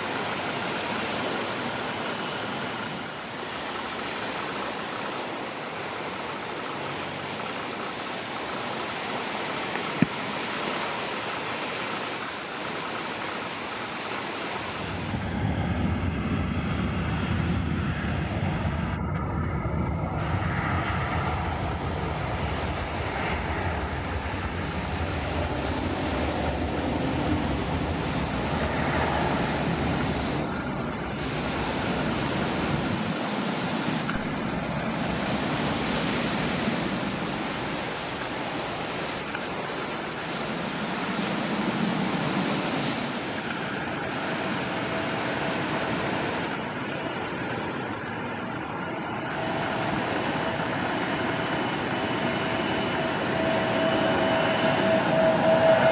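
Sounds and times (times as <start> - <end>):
sea surf: 0.0 - 55.9
wind on microphone: 14.5 - 55.9
low rumble: 14.8 - 33.0.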